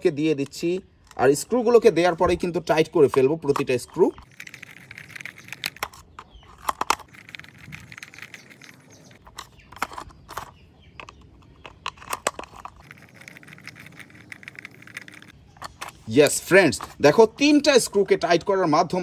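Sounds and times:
screwdriver clicking and scraping: 3.1 - 16.1.

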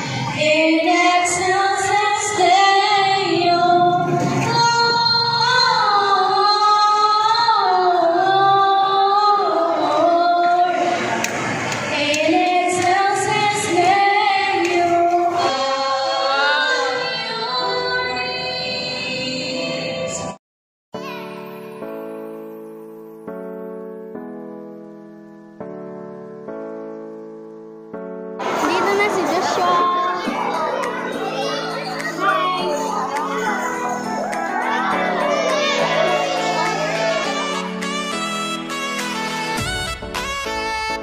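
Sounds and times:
girls singing in unison: 0.1 - 11.2, 11.8 - 20.2.

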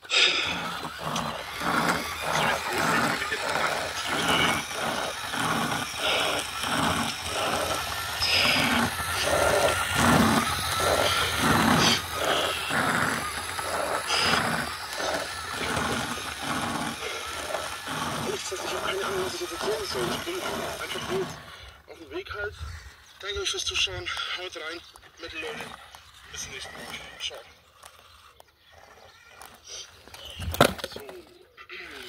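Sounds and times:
person making rough vocal sounds: 0.0 - 21.7.

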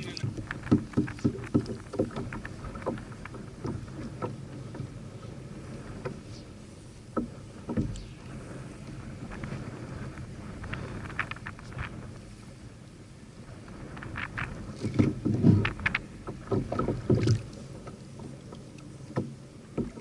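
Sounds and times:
small waves lapping on kayak hull: 0.0 - 20.0
sharp knocks: 0.3 - 3.0.

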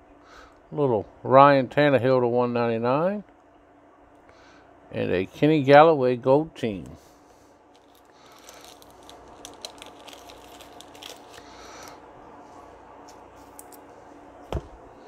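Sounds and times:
cards and foil packaging rustling: 7.7 - 13.9
soft thump: 14.5 - 14.8.

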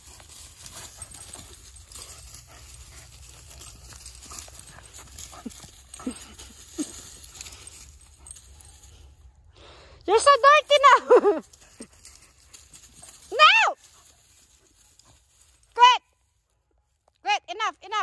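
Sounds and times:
paws scuffling through leaves: 0.0 - 9.2, 11.4 - 15.7.

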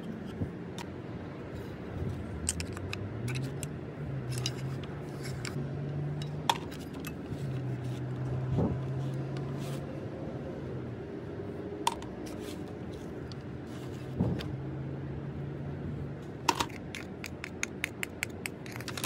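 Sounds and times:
small metal clicks and taps: 2.4 - 7.2, 16.5 - 19.0.

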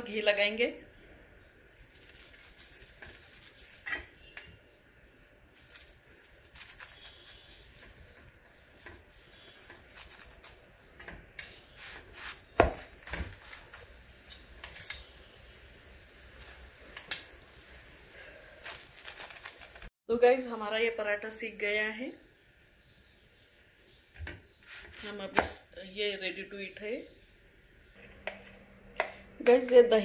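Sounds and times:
steel spoon scraping on iron griddle: 1.9 - 4.5, 5.5 - 15.1.

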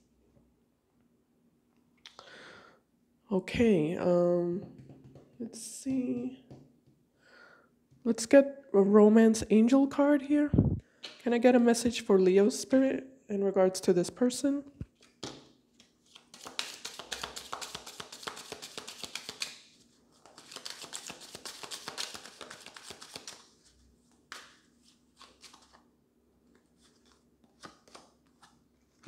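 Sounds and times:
cards being shuffled: 15.0 - 25.8, 26.5 - 29.0.

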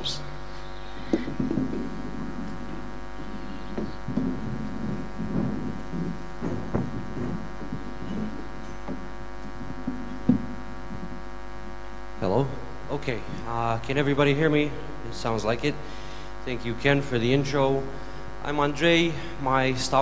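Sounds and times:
bumps and rustling on microphones: 0.0 - 17.3
electrical mains hum: 0.0 - 20.0.

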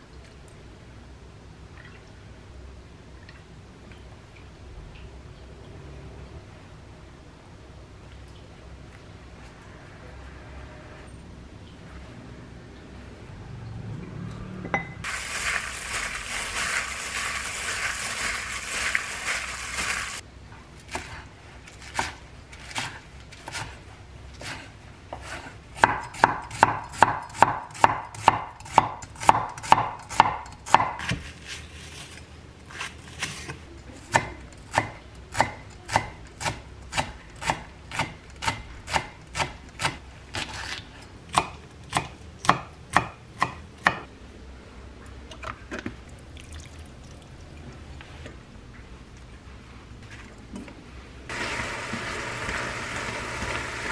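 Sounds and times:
meat being squeezed and mixed: 15.0 - 20.2.

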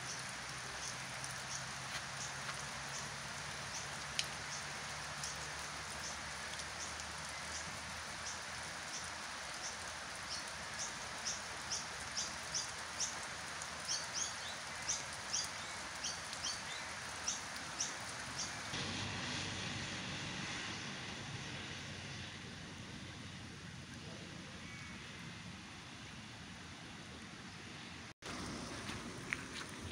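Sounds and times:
rain on wet grass: 0.0 - 20.7, 28.2 - 29.9.

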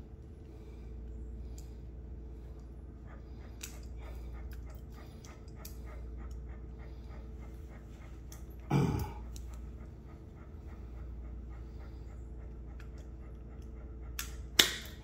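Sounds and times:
dog panting: 0.0 - 15.0
steady background hum: 0.0 - 15.0
dog grunting: 8.5 - 12.1.

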